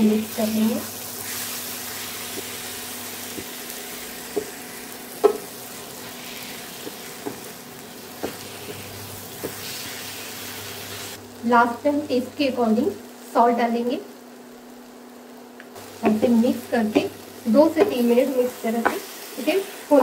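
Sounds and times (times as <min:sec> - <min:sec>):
food sizzling in a frying pan: 0:00.0 - 0:20.0
spatula tapping a pan: 0:02.3 - 0:02.6, 0:03.3 - 0:03.6, 0:04.3 - 0:04.6, 0:05.2 - 0:05.5, 0:06.8 - 0:08.8, 0:09.4 - 0:09.6, 0:17.7 - 0:18.0, 0:18.7 - 0:19.1.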